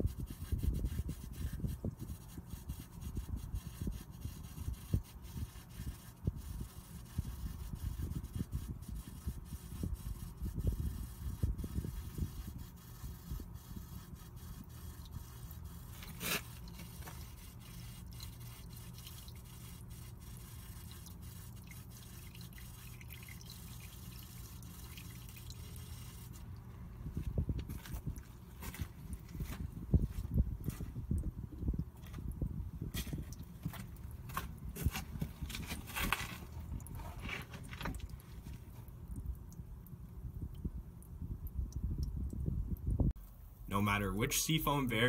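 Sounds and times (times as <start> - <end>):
oil trickling and dripping: 11.0 - 43.4.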